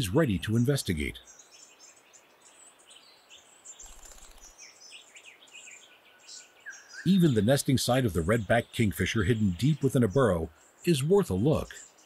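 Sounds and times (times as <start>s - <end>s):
quiet bush ambience: 0.0s - 12.0s
faint small bird chirps: 1.1s - 7.5s.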